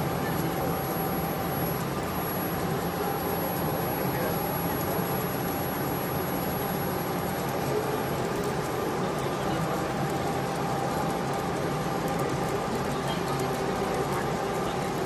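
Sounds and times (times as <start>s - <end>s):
faint steady tones: 0.0s - 8.2s
mechanical hum: 0.0s - 15.0s
murmur of crowd: 0.0s - 15.0s.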